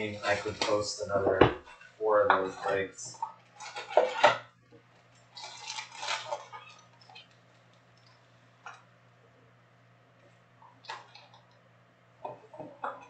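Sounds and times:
card packs rustling: 0.0 - 1.3, 5.3 - 7.9
faint low hum: 0.0 - 13.0.

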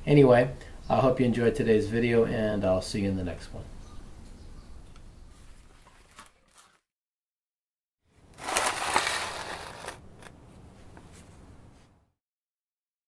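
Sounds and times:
grit crunching and rattling in a bowl: 8.4 - 10.0.

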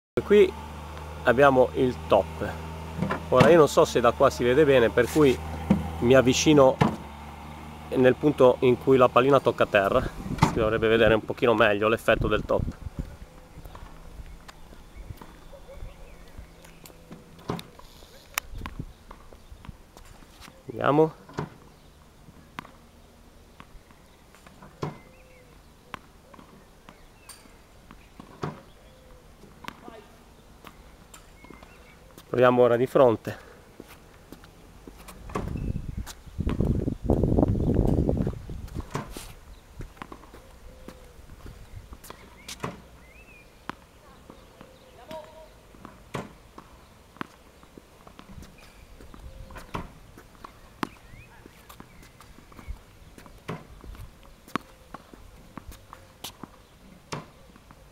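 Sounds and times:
tennis balls bouncing on court: 1.0 - 15.6, 18.5 - 39.2, 39.8 - 57.9
ball machine dull thump: 5.6 - 6.0, 6.7 - 7.1, 10.3 - 10.8, 45.8 - 46.4
footsteps on court: 33.2 - 42.9, 46.6 - 57.0.

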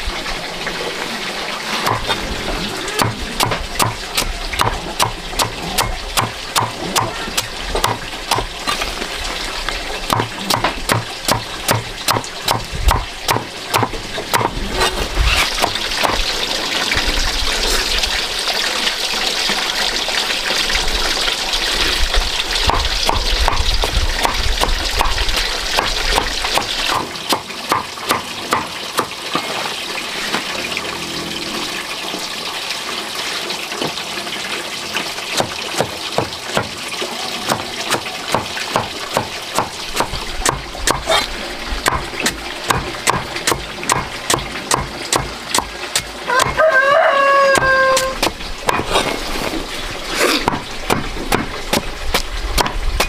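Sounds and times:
water running and splashing: 0.0 - 53.0
sharp knocks: 1.9 - 2.2, 10.1 - 14.5.

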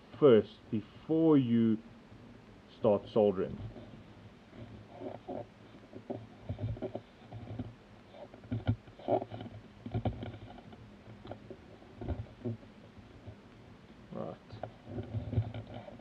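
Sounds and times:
cable rustling: 2.9 - 13.6, 14.5 - 16.0.

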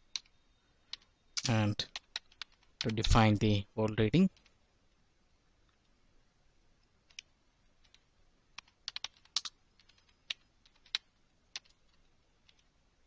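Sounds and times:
keyboard typing: 0.1 - 3.2, 4.2 - 4.6, 7.0 - 12.7.

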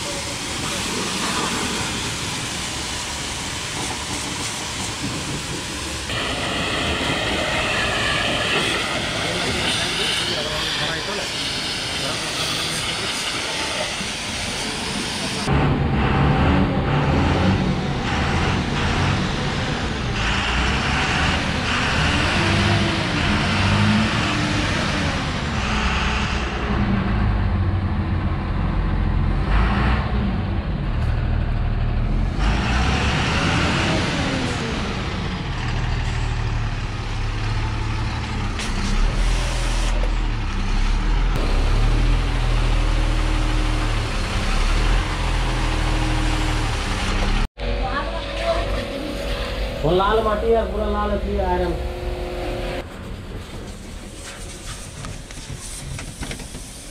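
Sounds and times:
pressure washer motor drone: 41.4 - 52.8.

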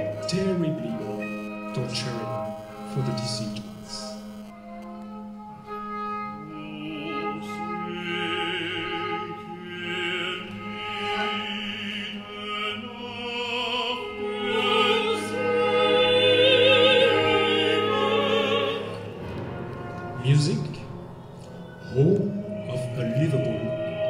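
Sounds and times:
operatic singing with vibrato: 0.0 - 4.7, 5.3 - 24.0
ensemble low drone: 15.2 - 24.0.

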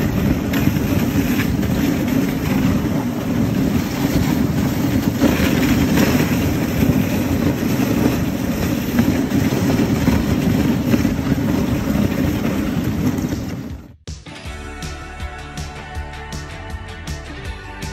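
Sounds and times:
sled rattling: 0.0 - 14.0
sled runners scraping on snow: 0.0 - 14.0.

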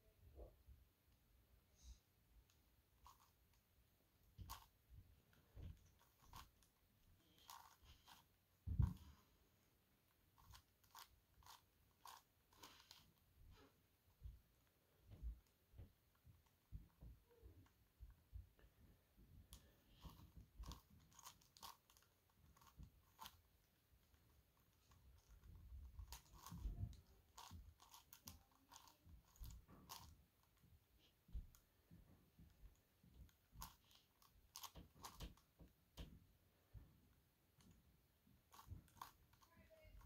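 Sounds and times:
plastic puzzle clicking: 20.0 - 23.4, 24.0 - 30.6, 33.3 - 35.5, 38.5 - 40.0.

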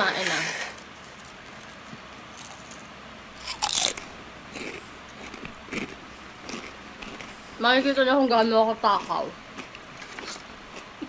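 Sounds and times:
crunchy bites into fried food: 0.8 - 7.4
chewing: 3.4 - 7.4, 9.0 - 10.9.

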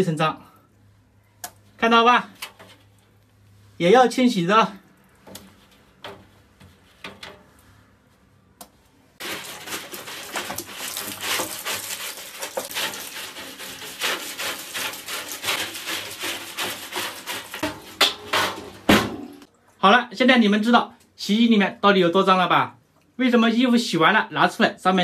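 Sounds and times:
scrubbing steel drum: 9.2 - 19.5.

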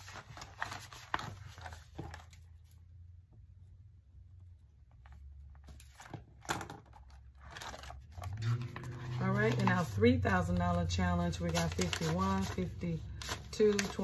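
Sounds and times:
paper money and plastic rustling: 0.0 - 2.8, 4.9 - 14.0.

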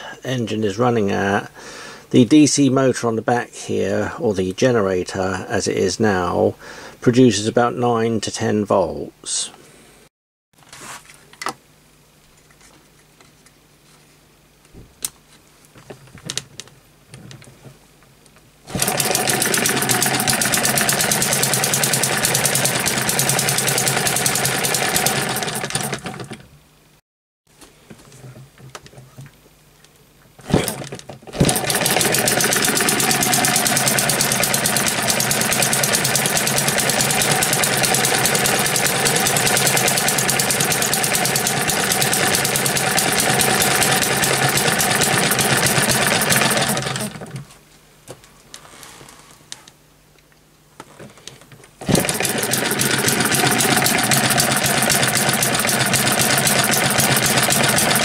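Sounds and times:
small gas engine clattering: 18.7 - 26.4, 30.4 - 47.5, 51.8 - 58.0.

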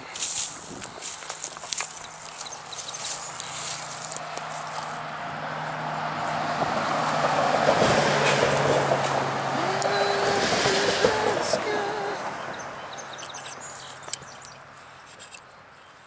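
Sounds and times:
truck driving over bridge: 2.0 - 14.8.

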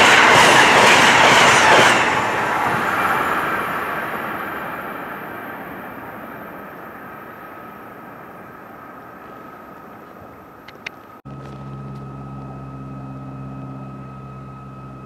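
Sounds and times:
train rumbling: 0.0 - 15.0.

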